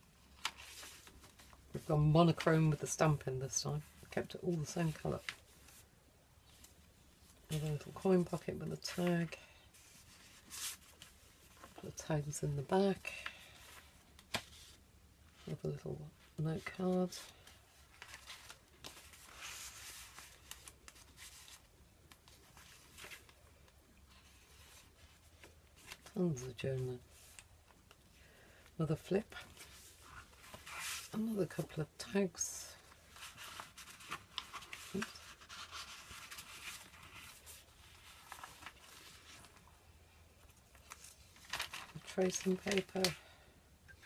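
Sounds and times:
paper rustling: 0:00.2 - 0:03.0, 0:06.5 - 0:12.1, 0:16.6 - 0:26.5, 0:29.3 - 0:31.8, 0:32.8 - 0:39.7, 0:40.4 - 0:43.2.

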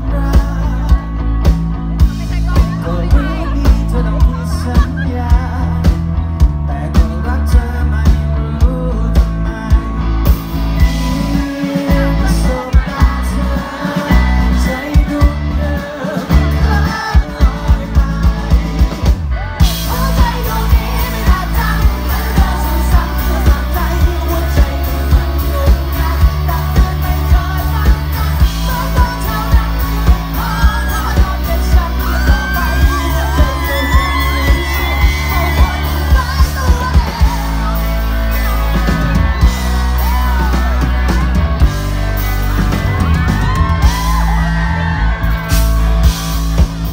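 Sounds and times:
man singing: 0:00.0 - 0:45.5
bass guitar: 0:00.0 - 0:46.9
electric guitar: 0:00.0 - 0:46.9
drum beat: 0:00.4 - 0:08.2, 0:10.3 - 0:46.9.

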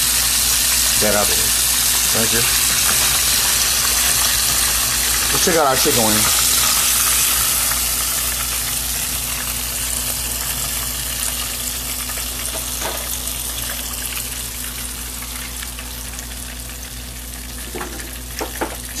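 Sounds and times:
oil sizzling and bubbling: 0:00.0 - 0:19.0.

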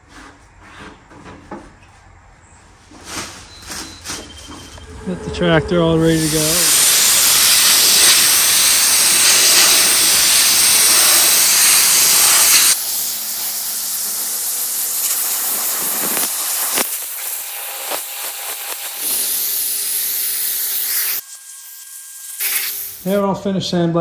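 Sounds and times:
sandblast gun hissing: 0:05.0 - 0:23.2.

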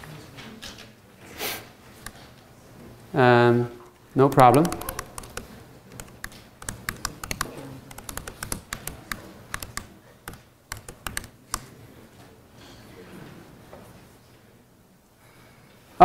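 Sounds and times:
keyboard key clicks: 0:04.3 - 0:11.7.

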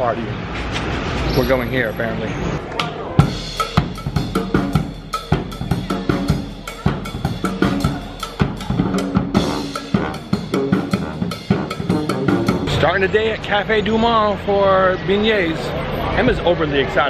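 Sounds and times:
music with drum-kit beat: 0:03.2 - 0:12.8.

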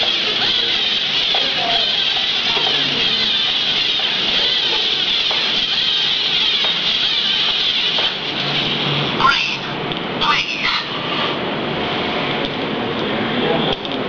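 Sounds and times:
robot motors whirring: 0:00.0 - 0:09.1.

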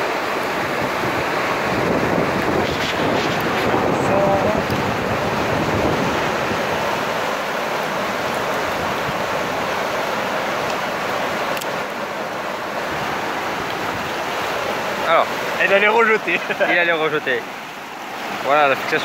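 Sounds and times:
wind buffeting microphone: 0:00.0 - 0:10.7
fast-flowing river current: 0:00.0 - 0:19.0.

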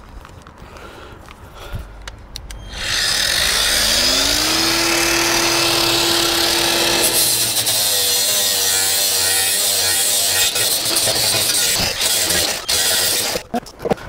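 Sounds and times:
angle grinder whining: 0:02.5 - 0:13.4
grinder disc grinding steel: 0:02.6 - 0:13.5.

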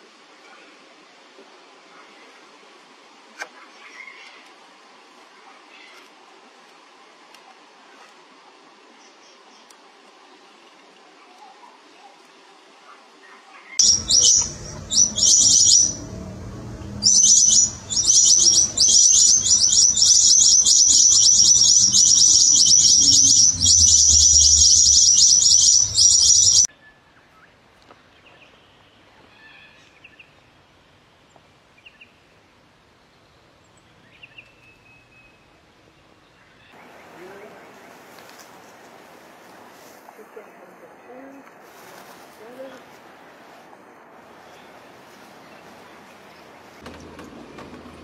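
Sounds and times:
faint bird calls: 0:13.3 - 0:26.7
rapid high bird chirps: 0:13.8 - 0:26.7.

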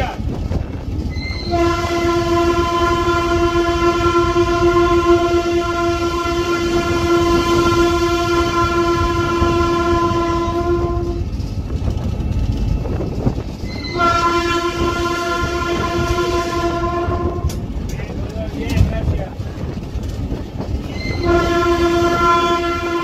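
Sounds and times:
locomotive engine rumble: 0:00.0 - 0:23.0
train wheels on rails: 0:00.0 - 0:23.0
locomotive air horn blast: 0:01.4 - 0:11.2, 0:13.7 - 0:17.6, 0:21.0 - 0:23.0.

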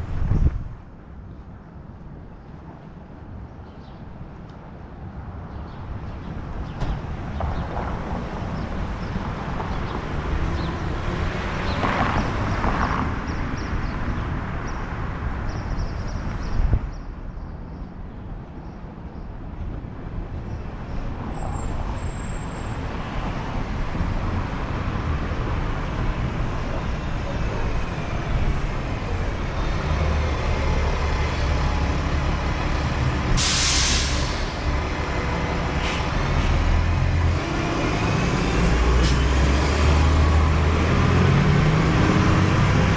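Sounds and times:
heavy traffic rumble: 0:00.0 - 0:42.9
brief sharp hiss: 0:33.4 - 0:34.7.

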